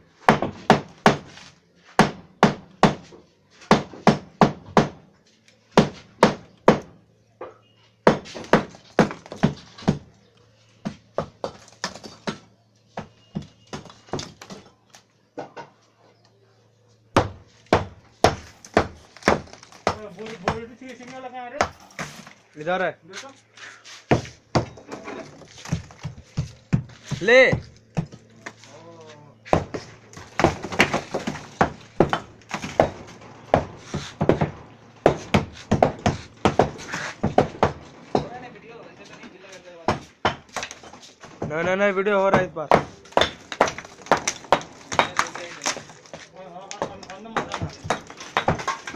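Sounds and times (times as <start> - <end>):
hammer striking brick wall: 0.2 - 5.1, 5.7 - 10.2, 10.8 - 14.8, 17.1 - 22.2, 24.1 - 28.6, 29.4 - 38.5, 39.8 - 48.9
brick and plaster breaking: 11.4 - 12.5, 29.5 - 38.4, 42.4 - 48.9
hammer knocking on wall: 30.4 - 38.4, 41.2 - 45.2.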